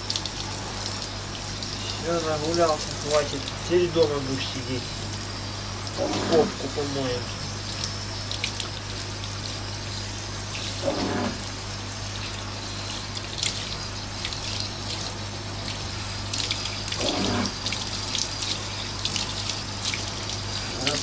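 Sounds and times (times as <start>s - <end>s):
shower spray hissing: 0.0s - 7.2s
water splashing: 5.8s - 21.0s.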